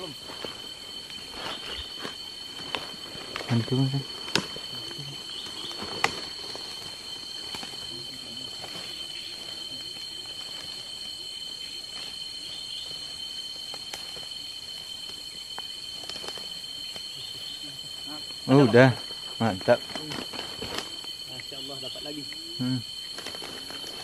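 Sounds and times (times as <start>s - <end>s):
brush rustling: 0.0s - 13.0s, 19.0s - 21.7s
insects droning: 0.0s - 24.0s
twigs snapping: 4.2s - 7.9s, 19.9s - 21.6s.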